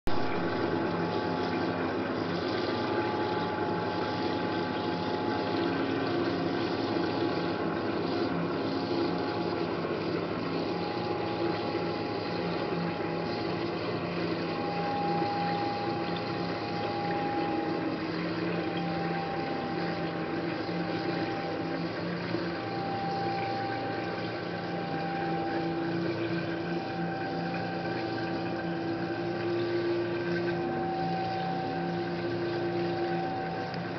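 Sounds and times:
electric water pump humming: 0.1 - 33.9
swirling water: 0.1 - 33.9.

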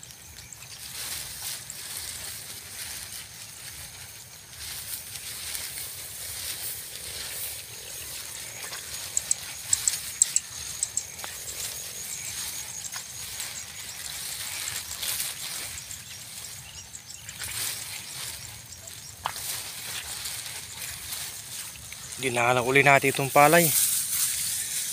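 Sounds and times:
high-pitched insect drone: 0.0 - 24.9
plants rustling underfoot: 0.0 - 24.9.

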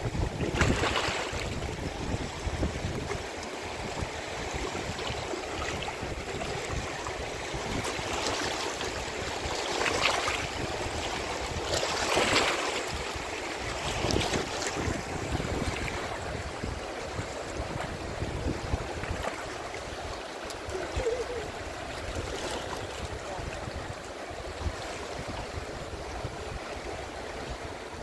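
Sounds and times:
rushing water: 0.0 - 28.0
wind rumbling on microphone: 0.0 - 28.0.

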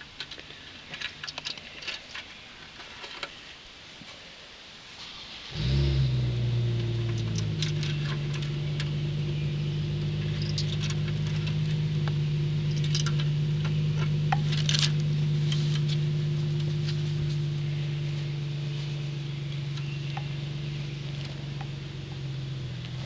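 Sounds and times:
light clicks and rustles: 0.0 - 4.3
low mechanical hum: 5.4 - 23.0.

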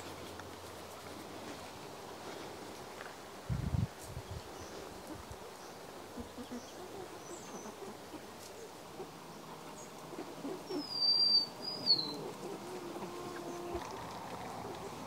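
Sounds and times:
hens clucking softly: 6.1 - 11.0, 11.8 - 15.0
bird whistled call: 10.7 - 12.2.

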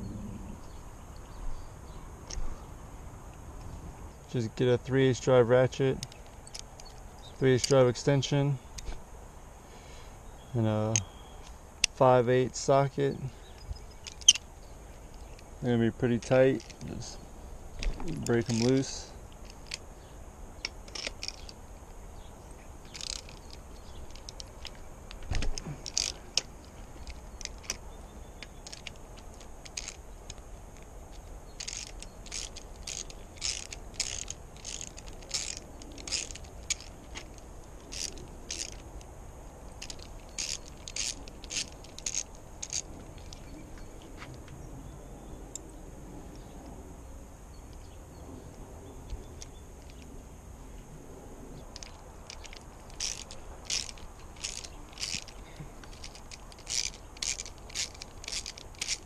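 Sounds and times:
ratchet clicking: 13.9 - 14.4, 17.8 - 19.8, 20.6 - 21.6, 22.8 - 27.8, 28.4 - 39.1, 39.7 - 43.5, 51.7 - 59.0.

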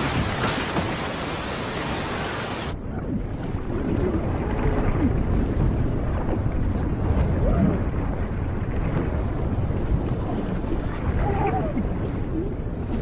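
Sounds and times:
floodwater rushing through debris: 0.0 - 2.8
muffled underwater rumble with gurgling: 2.6 - 13.0.

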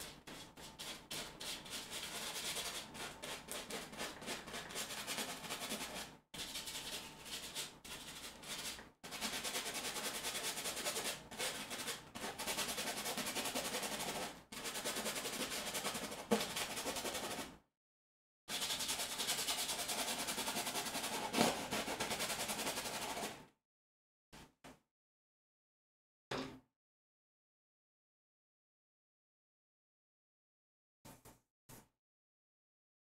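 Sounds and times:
bristle brush scrubbing canvas: 18.5 - 23.3.

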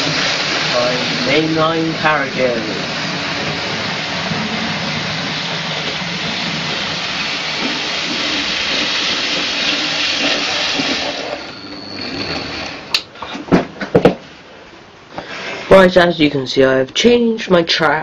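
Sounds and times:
model locomotive whirring: 0.0 - 13.1.

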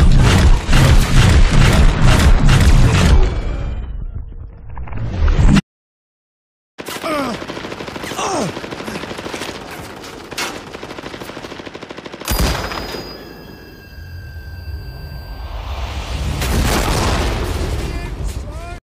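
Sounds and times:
automatic gunfire: 6.8 - 13.1
high ringing: 12.3 - 16.0
falling whistling tones: 13.4 - 16.2.

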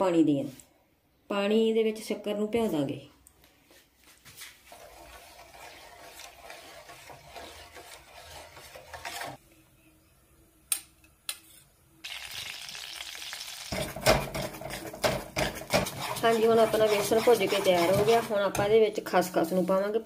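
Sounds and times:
flour sizzling in a pan: 4.3 - 9.4, 12.0 - 18.5
spoon scraping a pan: 4.6 - 9.4, 13.7 - 18.8.

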